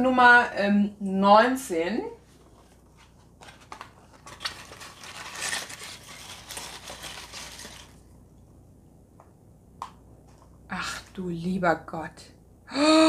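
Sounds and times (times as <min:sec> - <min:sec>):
cardboard scraping: 0:02.2 - 0:08.0
paper rustling: 0:02.2 - 0:08.1.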